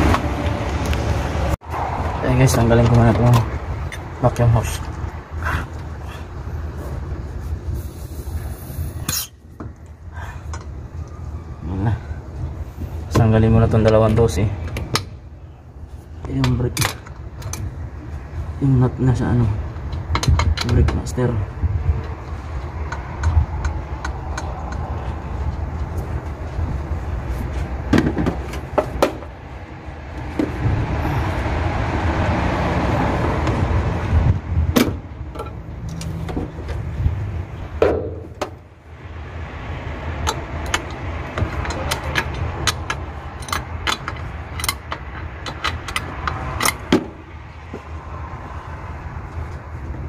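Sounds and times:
low rumble: 19.5s - 50.0s
hand tools clicking on metal: 40.2s - 46.9s.

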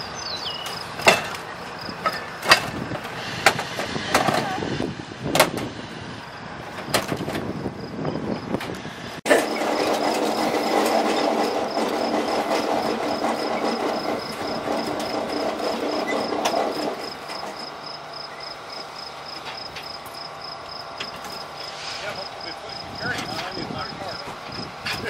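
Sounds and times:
sharp metal clanks: 0.6s - 2.8s
small engine running: 9.3s - 25.0s.

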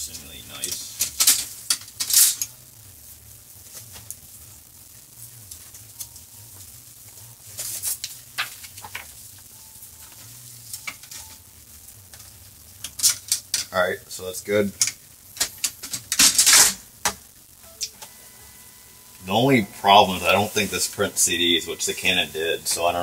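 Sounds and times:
low steady hum: 0.0s - 23.0s
paper rustling and tapping: 7.6s - 9.1s.

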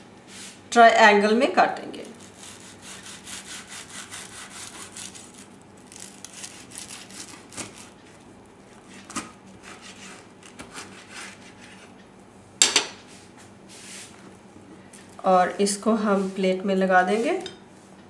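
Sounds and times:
knife sawing through crisp bread: 2.1s - 8.0s, 8.7s - 11.9s.

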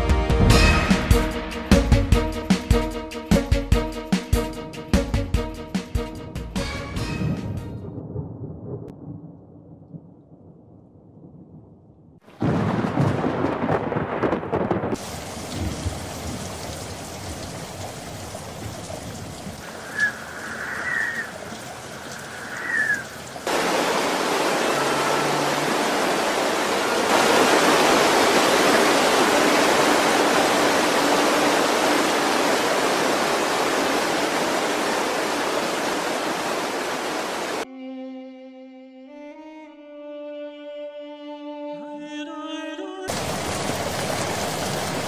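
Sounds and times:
thunder crack: 7.2s - 16.7s
steady rain: 12.2s - 37.6s, 43.1s - 45.0s
floodwater rushing: 15.0s - 37.6s, 43.1s - 45.0s.

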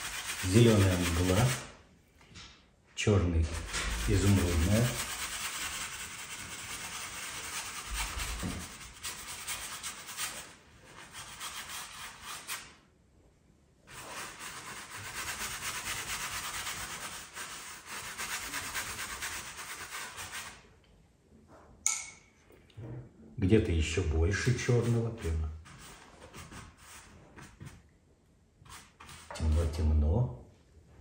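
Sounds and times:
bristle brush scrubbing canvas: 0.0s - 1.8s, 3.5s - 12.6s, 13.9s - 20.6s, 24.4s - 27.8s, 28.6s - 29.8s.

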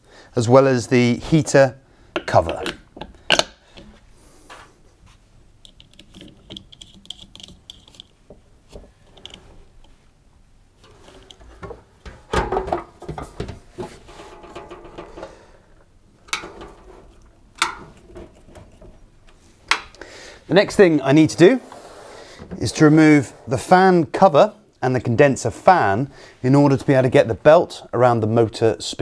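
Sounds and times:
plastic and metal parts clattering: 5.6s - 9.9s, 10.8s - 15.6s, 16.2s - 19.4s.

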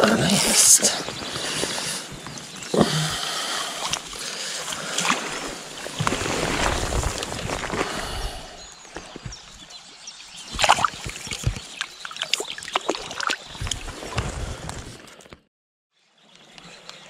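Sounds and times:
river water lapping: 0.5s - 14.7s
sharp splashes: 3.8s - 7.9s, 10.5s - 13.9s.

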